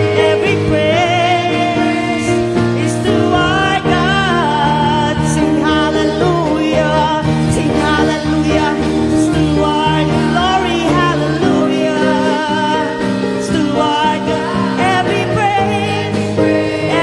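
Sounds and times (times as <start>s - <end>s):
electronic keyboard chords: 0.0s - 17.0s
group of singers: 0.0s - 17.0s.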